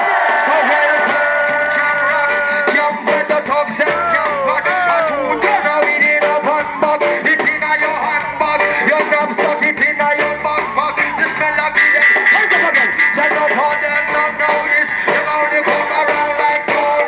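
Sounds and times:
live band with vocals: 0.0 - 17.0
held high note: 10.2 - 15.3.

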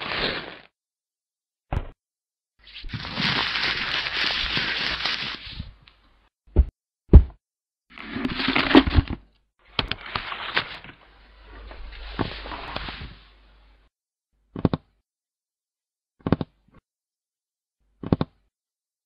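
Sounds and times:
paper rustling: 2.8 - 5.7, 9.8 - 13.4.

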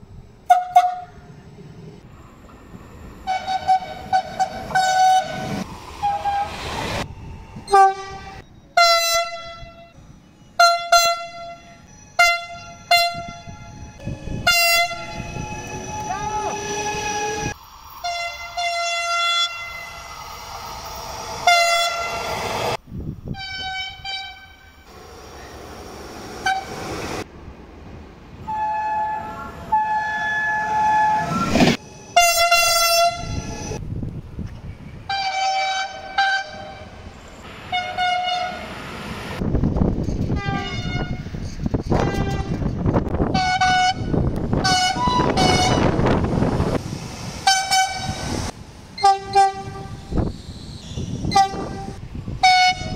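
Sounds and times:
train horns tooting: 0.4 - 1.2, 3.2 - 6.6, 7.7 - 9.9, 10.6 - 19.9, 21.4 - 22.2, 23.3 - 24.9, 26.4 - 26.9, 28.4 - 31.5, 32.1 - 33.8, 35.1 - 37.0, 37.7 - 38.7, 40.3 - 41.3, 41.9 - 46.2, 47.4 - 48.3, 49.0 - 50.2, 51.2 - 52.9
train rushing past: 1.2 - 10.6, 11.5 - 23.4, 24.8 - 52.9.

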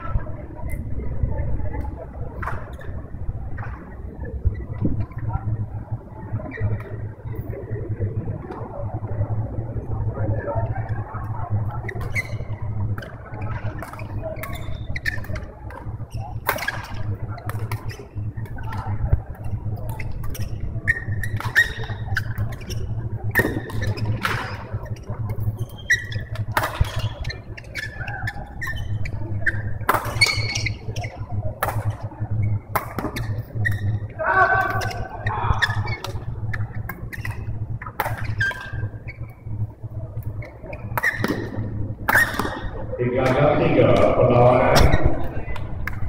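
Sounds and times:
steady low hum: 0.0 - 46.0
shoes squeaking on court: 11.8 - 15.5, 19.9 - 34.1, 34.8 - 39.6, 40.2 - 42.8
rackets hitting shuttlecock: 25.7 - 27.2, 29.9 - 32.0, 32.7 - 33.3, 36.9 - 38.8, 40.8 - 43.4.

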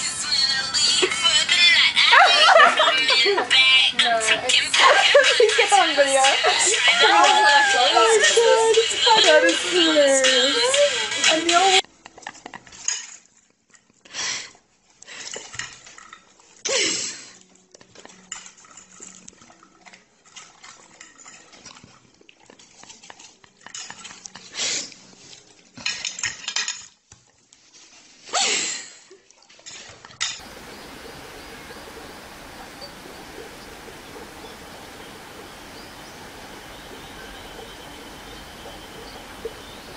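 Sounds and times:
steady outdoor hiss: 0.0 - 11.8, 30.3 - 39.9.

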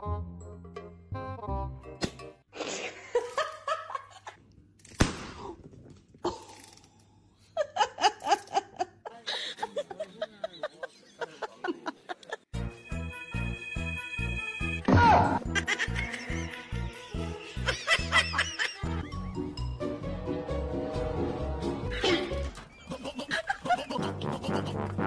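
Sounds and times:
people laughing: 7.6 - 12.5, 15.4 - 19.4, 21.9 - 25.0.

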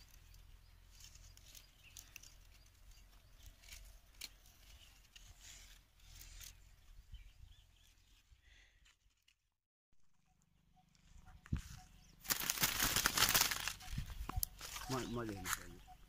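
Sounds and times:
dry nest crackling and rustling: 11.5 - 15.8.

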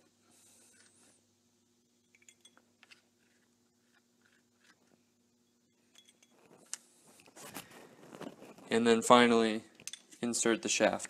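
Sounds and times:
faint stick ticks and scrapes: 2.8 - 5.0.

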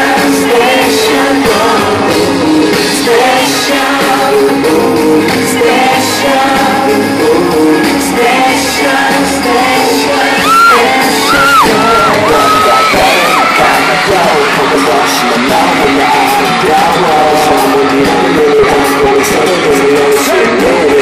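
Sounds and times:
man singing into microphone: 0.0 - 21.0
pop hip-hop backing track: 0.0 - 21.0.

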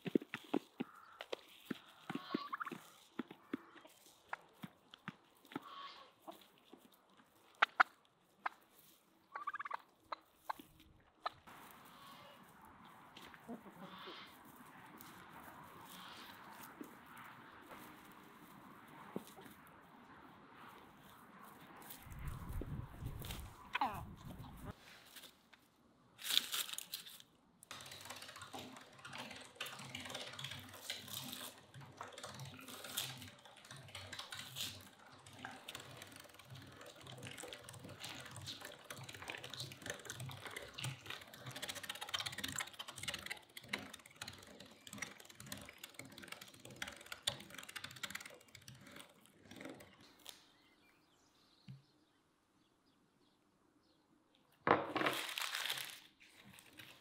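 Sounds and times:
meat grinder clicking: 27.7 - 50.1.

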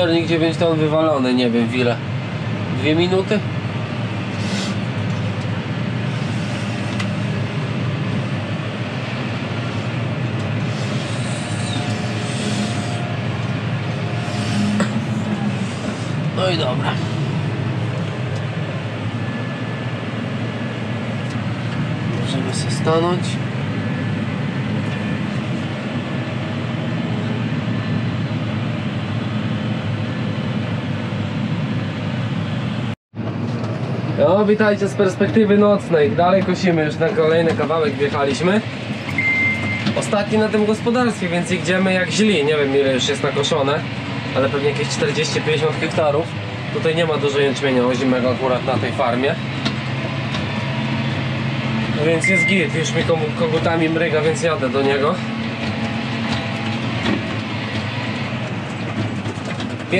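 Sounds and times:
tractor engine droning: 0.0 - 59.9.

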